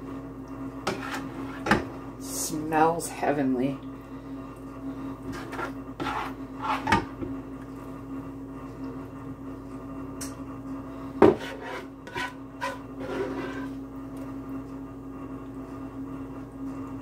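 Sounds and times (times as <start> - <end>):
steady low hum: 0.0 - 17.0
spoon scraping and knocking pot: 0.9 - 1.9, 5.3 - 7.1, 11.2 - 13.7.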